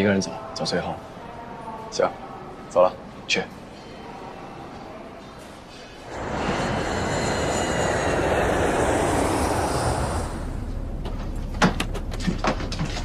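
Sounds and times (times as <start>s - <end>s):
jet engine rush and whine: 6.0s - 11.9s.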